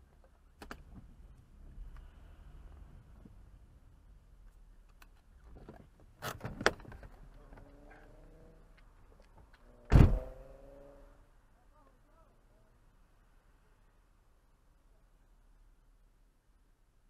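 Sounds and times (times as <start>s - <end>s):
car door opening clicks: 9.9s - 10.3s
car door shutting thump: 9.9s - 10.4s.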